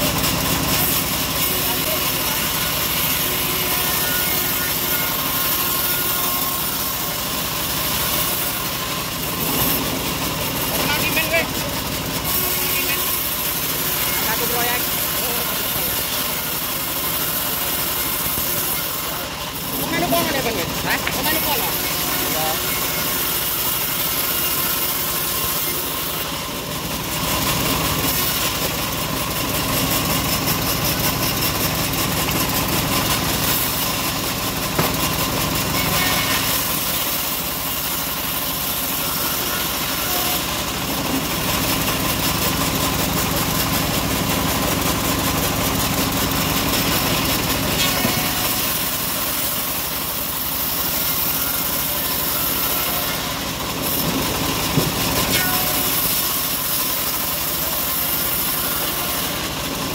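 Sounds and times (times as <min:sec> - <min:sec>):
bandsaw cutting wood: 0:00.0 - 0:59.9.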